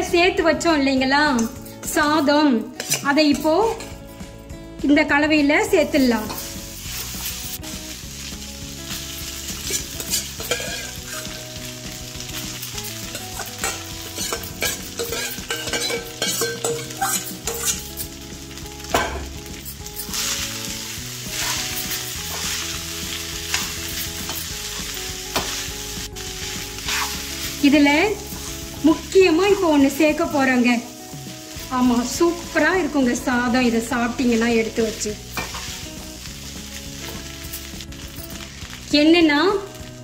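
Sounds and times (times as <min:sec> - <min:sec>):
metal spoon scraping pan: 0:02.8 - 0:03.1, 0:09.6 - 0:11.4, 0:12.8 - 0:18.1, 0:26.8 - 0:27.3
steady sizzle: 0:05.6 - 0:40.0
seeds crackling in hot oil: 0:06.2 - 0:40.0.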